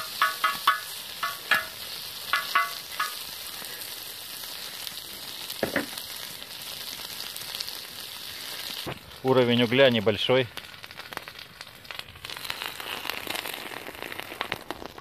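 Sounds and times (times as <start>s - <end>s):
metal utensil clinking on steel: 0.0s - 3.2s
pork fat sizzling: 0.0s - 15.0s.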